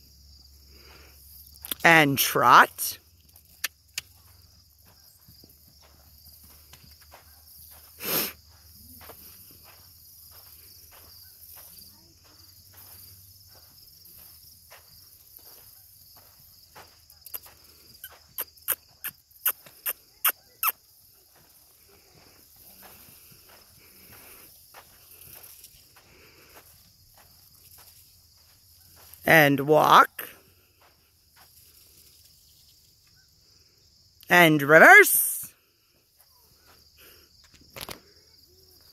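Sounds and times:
insects chirring: 0.0s - 38.9s
hooves trotting on dirt: 3.1s - 29.3s.

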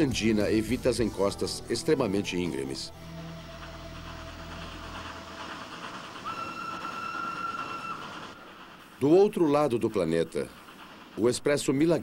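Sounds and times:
steam locomotive working: 0.0s - 12.0s
steam whistle: 6.2s - 8.3s.

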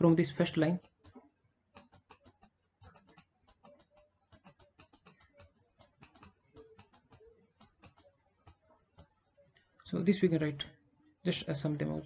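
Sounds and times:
stylus tapping on tablet: 0.2s - 9.7s.

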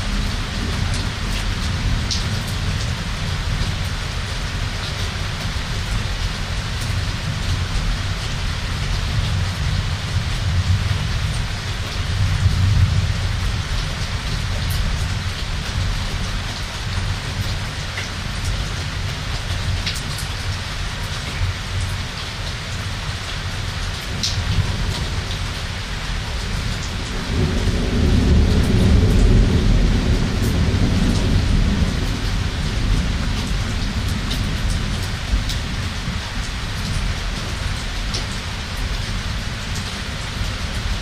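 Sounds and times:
heavy rain hissing: 0.0s - 41.0s
raindrops pattering: 0.0s - 41.0s
rolling thunder rumble: 26.3s - 38.1s.

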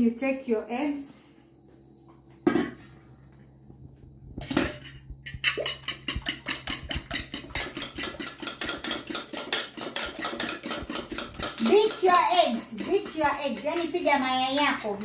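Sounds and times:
eggs beaten in a metal bowl: 4.4s - 15.0s.

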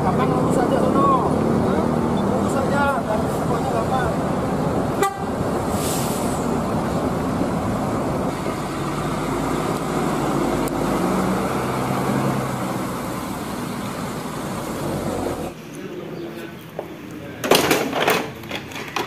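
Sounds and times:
bus engine running: 0.0s - 15.7s
road and traffic noise: 0.0s - 19.0s
short hiss: 5.7s - 6.5s.

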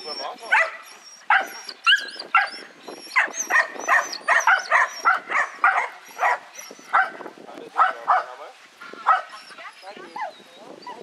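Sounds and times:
dog barking: 0.5s - 2.6s, 3.2s - 7.2s, 7.8s - 8.4s, 9.0s - 9.4s.

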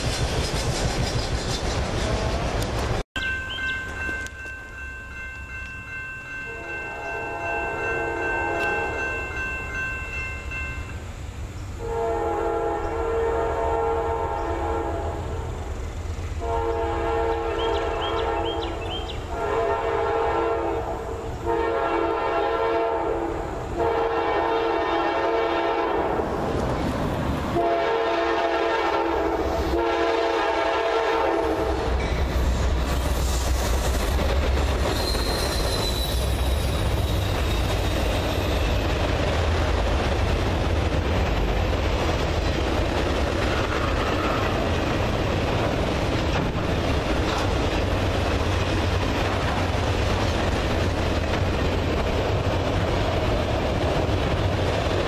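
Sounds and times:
wheels clacking on rail joints: 0.0s - 6.8s, 31.9s - 55.0s
crossing signal ringing: 3.2s - 11.1s
locomotive horn blasts: 6.4s - 9.1s, 11.8s - 15.4s, 16.4s - 26.3s, 27.6s - 32.0s
freight cars rumbling: 31.5s - 55.0s
wheel squeal: 34.8s - 38.8s.

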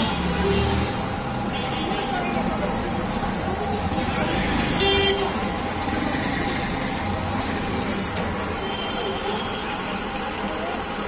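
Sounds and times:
street traffic noise: 0.0s - 11.0s
vehicle horn toot: 4.8s - 5.3s, 8.6s - 9.3s.

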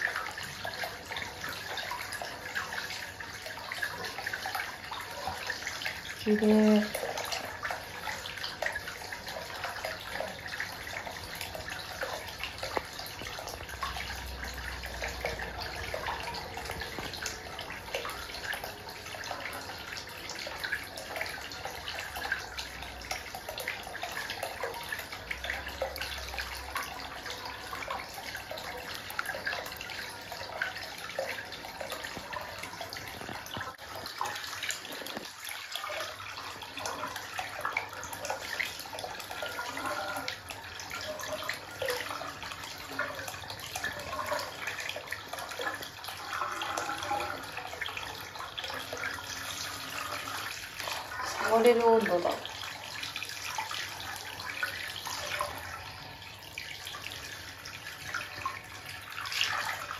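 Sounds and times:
water pouring from a pipe: 0.0s - 59.9s.

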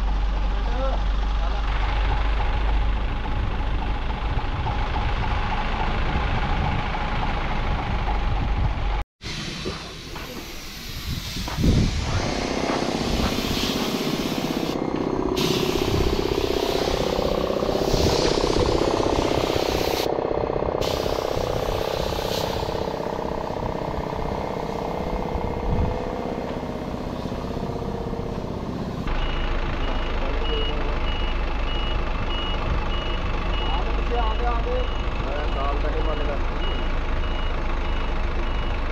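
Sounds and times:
paint spray gun hissing: 9.3s - 14.8s, 15.4s - 20.1s, 20.8s - 23.0s
mechanical running noise: 11.8s - 27.6s
vehicle reversing alarm beeping: 22.4s - 38.9s.

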